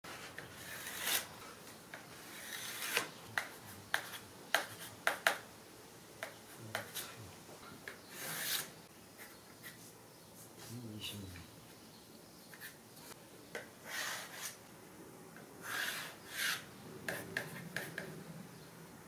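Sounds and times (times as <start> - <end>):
metal ruler scraping plywood: 2.2 - 3.1, 15.6 - 16.7.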